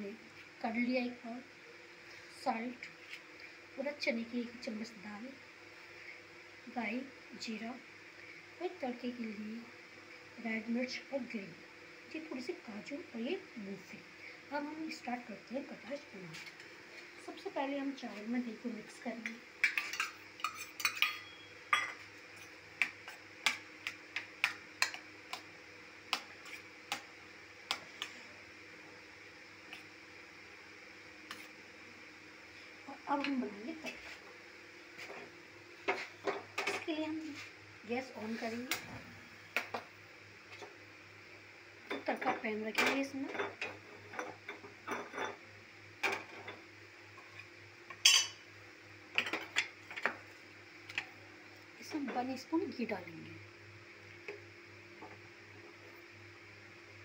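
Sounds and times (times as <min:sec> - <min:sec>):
spoon clinking against steel bowl: 0:19.6 - 0:22.0, 0:48.0 - 0:48.4.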